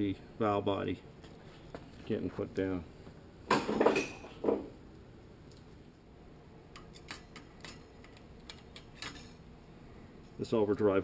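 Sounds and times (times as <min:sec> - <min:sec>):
metal parts clattering on workbench: 0:03.5 - 0:04.7, 0:08.5 - 0:09.4.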